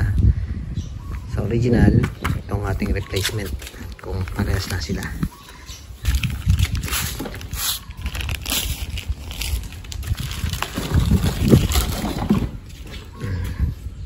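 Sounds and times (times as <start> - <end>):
wind on microphone: 0.0 - 14.0
rubber strips and plastic rustling: 6.0 - 13.1.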